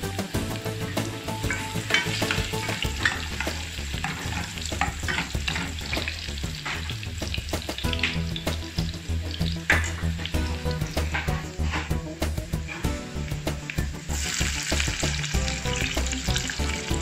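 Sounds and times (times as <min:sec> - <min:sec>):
ginger sizzling in hot oil: 0:00.0 - 0:17.0
plastic spoon stirring in pan: 0:01.8 - 0:07.0.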